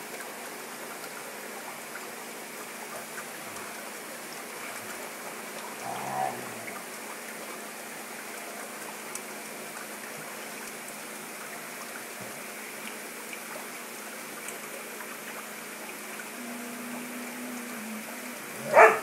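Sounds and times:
water trickling and splashing: 0.0s - 19.0s.

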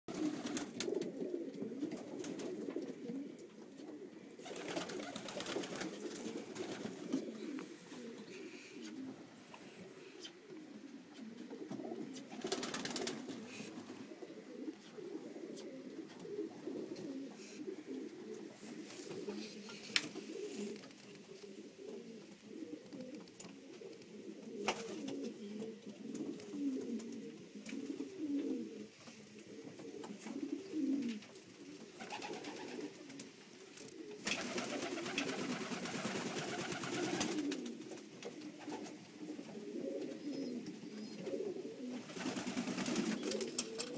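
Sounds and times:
wings flapping: 0.1s - 1.2s, 1.8s - 2.9s, 4.4s - 8.2s, 11.6s - 14.0s, 24.6s - 25.3s, 32.0s - 39.0s, 41.3s - 43.9s
pigeons cooing: 0.1s - 43.9s.

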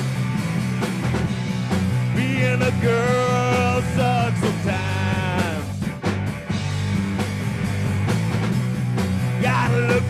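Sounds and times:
rock band playing: 0.0s - 10.0s
lead vocal singing: 2.2s - 5.8s, 9.4s - 10.0s.

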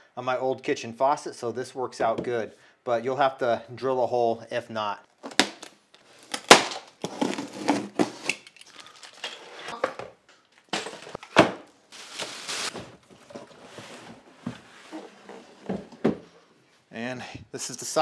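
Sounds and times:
packaging rustling and scraping: 6.0s - 9.7s, 11.9s - 15.9s.

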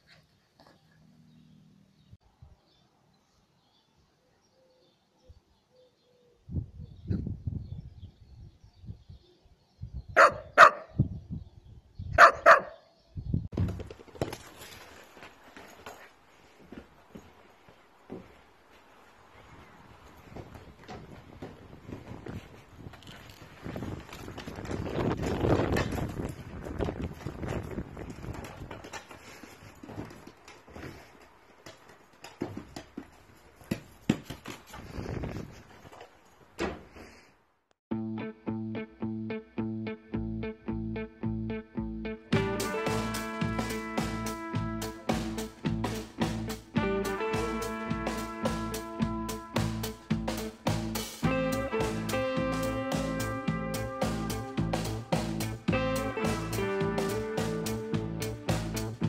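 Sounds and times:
dog barking: 10.2s - 10.9s, 12.2s - 12.9s
ball knocking on paving stones: 31.6s - 34.8s.

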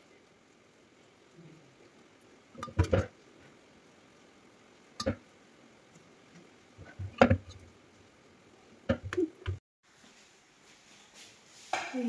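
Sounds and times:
knocks and taps on steel pot: 5.0s - 5.2s.

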